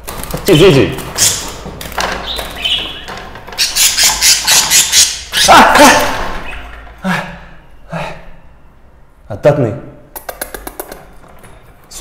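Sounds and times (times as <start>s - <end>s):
budgerigar squawking: 2.2s - 6.7s.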